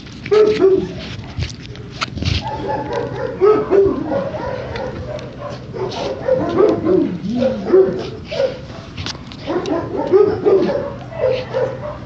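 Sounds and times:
dog whining and yipping: 0:05.8 - 0:08.6.

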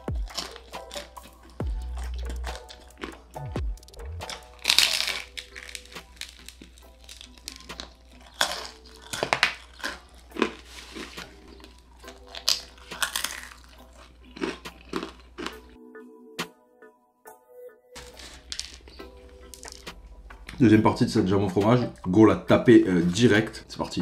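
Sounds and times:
crunchy pizza chewing: 0:00.0 - 0:15.8, 0:18.0 - 0:20.7
background music: 0:00.0 - 0:24.0.

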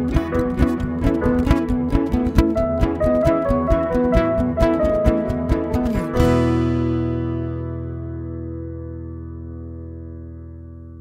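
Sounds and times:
held final music chord: 0:02.2 - 0:08.5.

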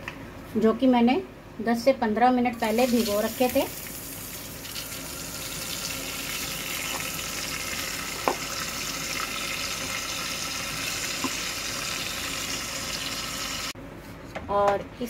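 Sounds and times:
rice sizzling in ghee: 0:02.7 - 0:13.8.

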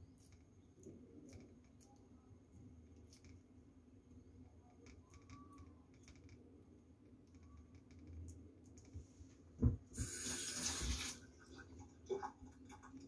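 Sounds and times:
knock: 0:09.6 - 0:09.8
soft thumps: 0:09.6 - 0:09.9
kitchen tap running: 0:10.0 - 0:13.0.

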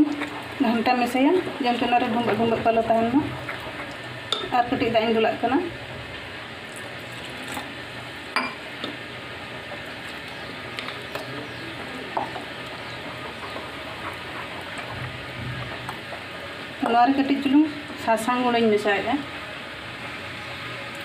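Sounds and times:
spoon stirring thick batter: 0:00.0 - 0:05.6, 0:08.8 - 0:17.6.

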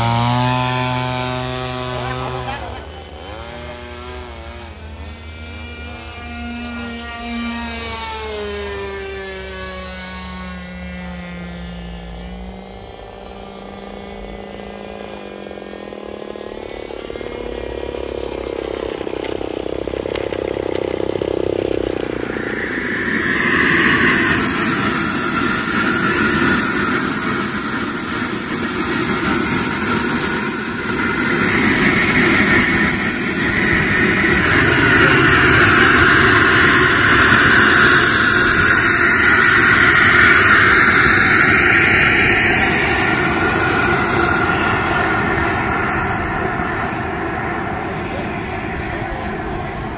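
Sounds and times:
model jet turbine whining: 0:00.0 - 0:49.9.

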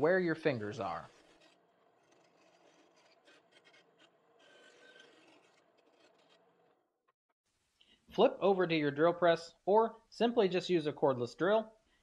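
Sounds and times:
faint scratching and rubbing: 0:00.4 - 0:06.7.

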